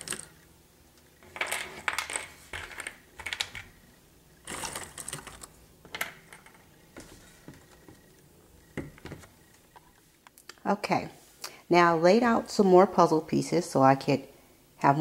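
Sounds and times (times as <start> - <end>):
puzzle pieces clattering on table: 0.0 - 0.4, 1.2 - 3.7, 4.4 - 7.9.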